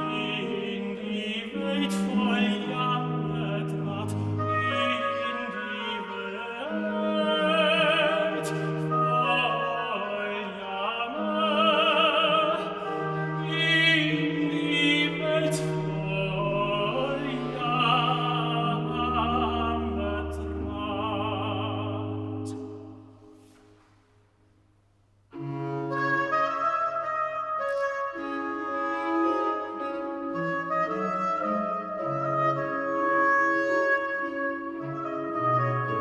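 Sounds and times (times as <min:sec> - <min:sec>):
tenor singing aria: 0:00.0 - 0:23.4.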